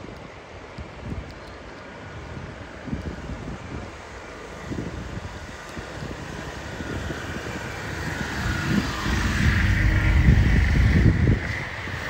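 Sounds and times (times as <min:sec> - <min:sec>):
wind buffeting the microphone: 0:00.0 - 0:12.0
vehicle engine drone: 0:03.7 - 0:12.0.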